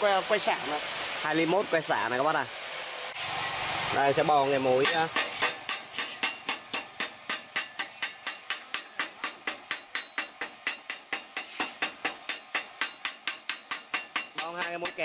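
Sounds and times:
hammer tapping on steel: 4.8s - 15.0s.

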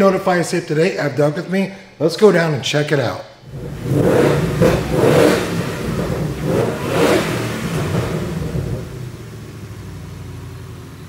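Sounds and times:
car engine revving: 3.4s - 11.0s.

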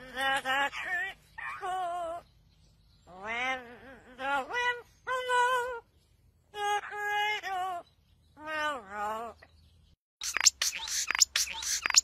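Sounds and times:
parrot singing: 10.2s - 12.0s.

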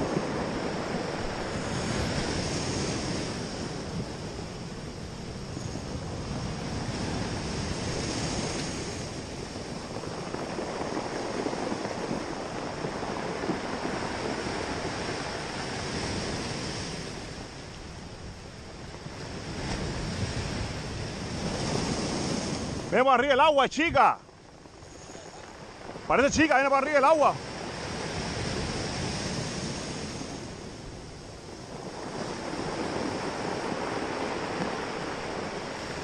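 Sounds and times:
ocean surf breaking on cobbles: 0.0s - 36.0s
wind buffeting microphone: 0.0s - 36.0s.

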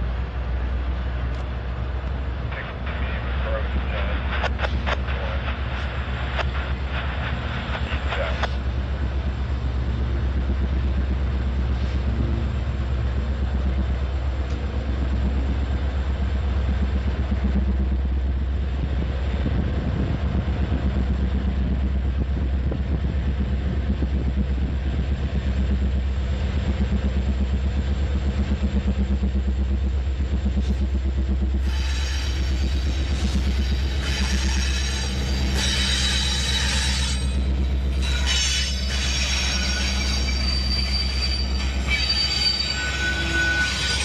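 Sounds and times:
diesel locomotive engine drone: 0.0s - 44.0s.

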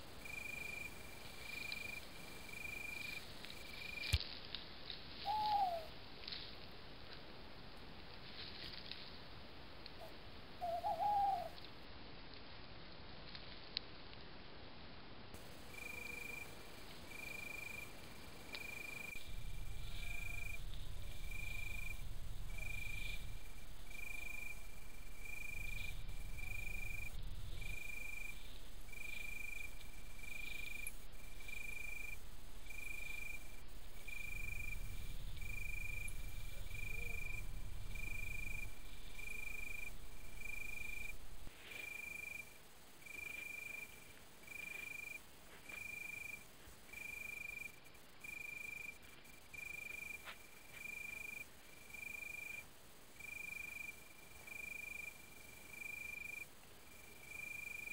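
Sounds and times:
insect calling: 0.0s - 6.6s, 10.0s - 11.7s, 15.4s - 57.9s
low rumble: 15.4s - 41.5s.

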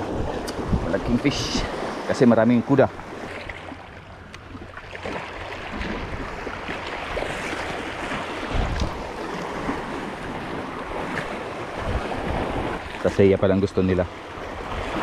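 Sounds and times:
wind on microphone: 0.0s - 2.1s, 4.0s - 13.2s
sea water washing at shore: 0.0s - 15.0s.

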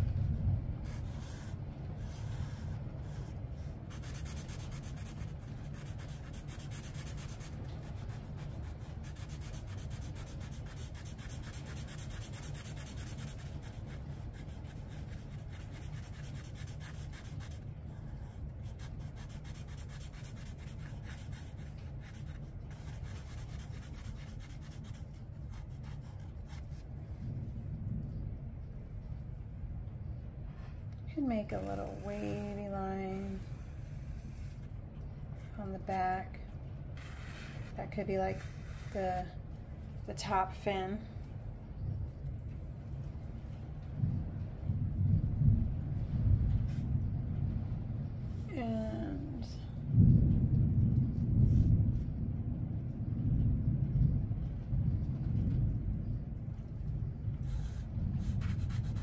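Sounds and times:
steady low hum: 0.0s - 59.0s
marker scribbling on paper: 0.9s - 3.3s, 3.9s - 17.6s, 18.2s - 26.6s, 31.6s - 32.6s, 33.2s - 34.7s, 37.0s - 39.3s, 57.5s - 59.0s.

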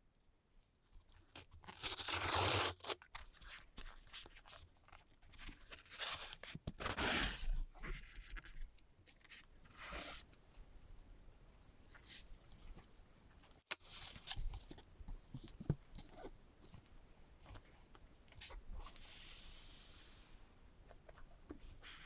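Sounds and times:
cardboard box ripping open: 1.7s - 3.0s.

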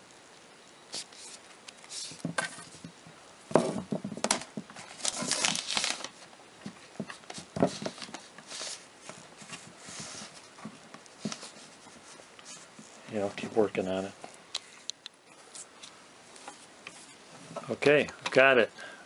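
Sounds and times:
small knocks: 2.2s - 4.8s
wiring harness rubbing rustles: 7.1s - 18.0s.

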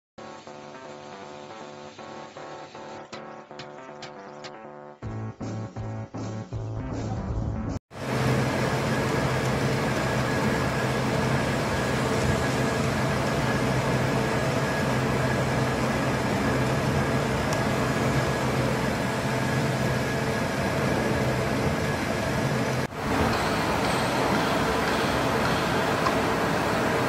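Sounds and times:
band saw hum: 8.0s - 27.0s
hiss of saw cutting metal: 23.0s - 27.0s.

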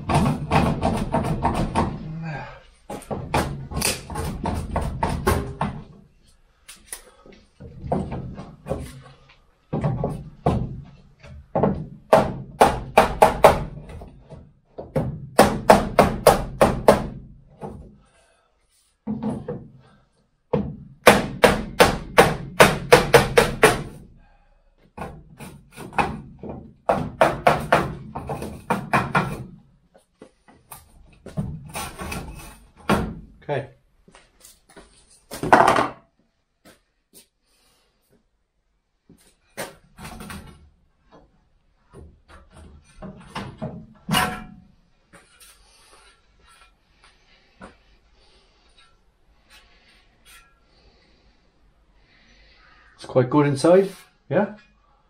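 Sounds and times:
hammer knocking on steel frame: 0.0s - 2.0s, 11.5s - 14.0s, 14.8s - 17.8s, 20.5s - 23.9s, 25.9s - 29.4s.

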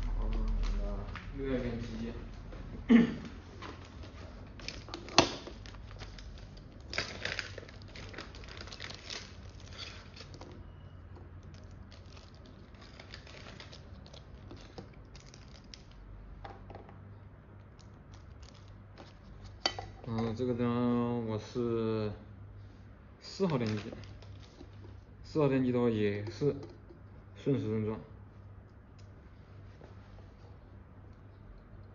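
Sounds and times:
plastic bag crinkling: 3.8s - 10.6s, 11.4s - 16.1s, 17.8s - 19.4s, 23.4s - 25.0s.

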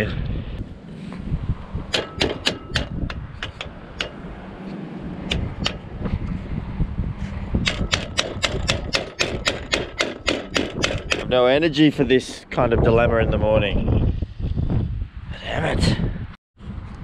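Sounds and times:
metal clicks and taps: 1.9s - 4.2s.

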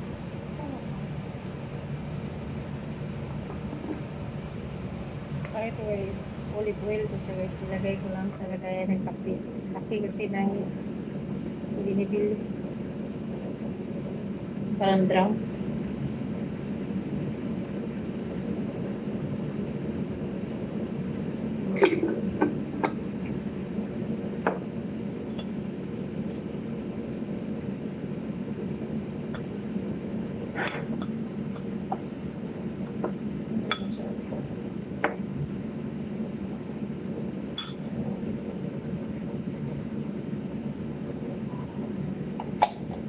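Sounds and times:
low hum: 0.0s - 43.0s
metal spoon clinking on bowl: 37.6s - 37.9s.

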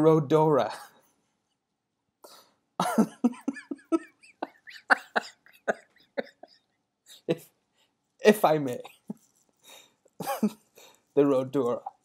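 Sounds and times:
man laughing: 2.8s - 7.5s, 10.2s - 10.7s.

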